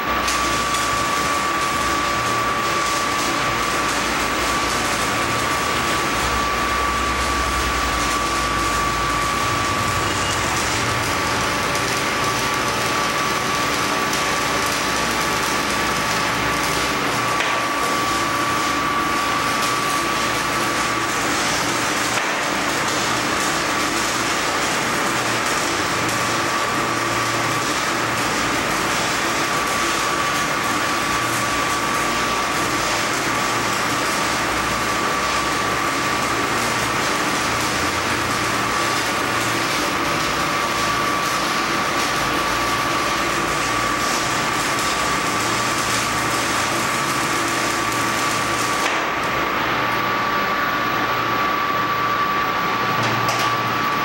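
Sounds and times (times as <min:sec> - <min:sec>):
high whine: 0:00.0 - 0:23.8
welding arc crackling hiss: 0:00.0 - 0:54.0.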